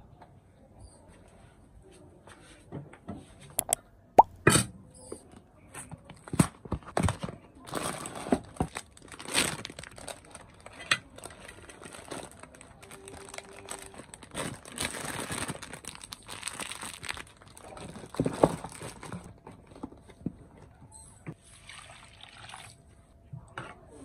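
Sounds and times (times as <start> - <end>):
plastic bag crinkling: 7.7 - 19.3.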